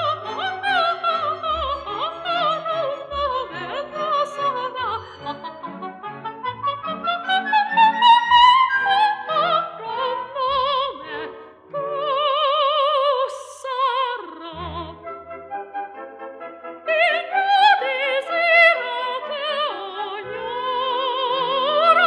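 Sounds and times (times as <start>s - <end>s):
instrumental accompaniment: 14.5s - 17.4s.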